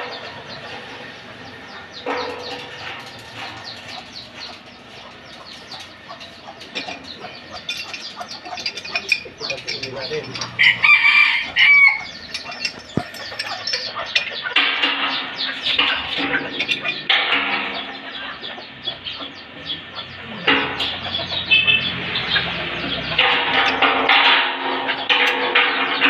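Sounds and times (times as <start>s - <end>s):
rooster crowing: 10.5s - 12.2s.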